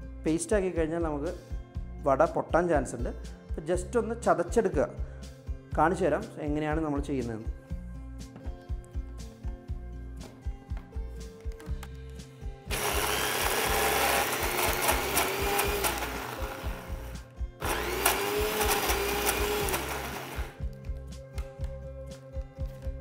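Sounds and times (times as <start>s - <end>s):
background music: 0.0s - 23.0s
mixer grinder crushing: 12.7s - 20.6s.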